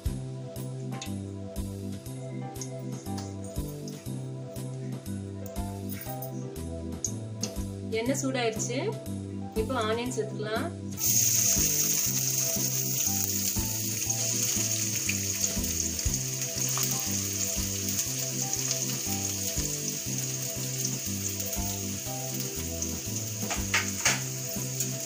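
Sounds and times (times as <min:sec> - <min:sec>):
onions sizzling in oil: 0:11.0 - 0:25.0
sharp taps on pan: 0:23.5 - 0:24.3.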